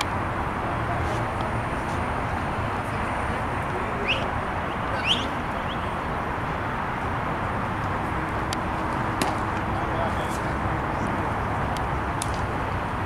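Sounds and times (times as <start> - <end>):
bird chirping: 4.0 - 6.1.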